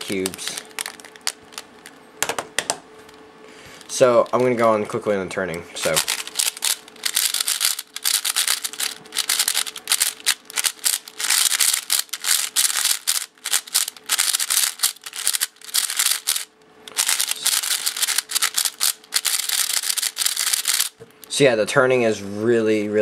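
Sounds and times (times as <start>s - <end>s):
puzzle cube clicking and scraping: 5.8s - 21.0s.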